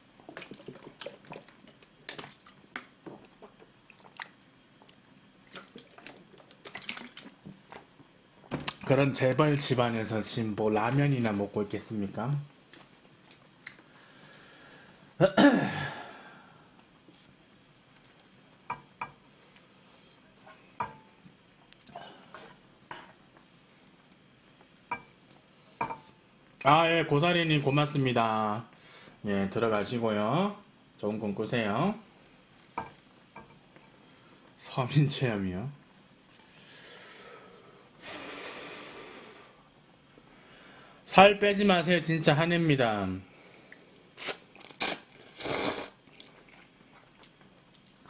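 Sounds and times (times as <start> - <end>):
small clicks and mouth noises: 0.3 - 7.9, 12.7 - 13.9, 21.7 - 22.0, 46.0 - 48.0.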